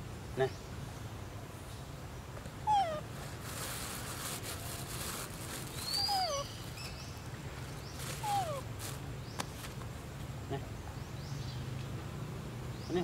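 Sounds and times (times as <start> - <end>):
macaque rising chirp: 2.6 - 3.0, 5.8 - 7.0, 8.2 - 8.7
macaque short falling calls: 8.2 - 8.7.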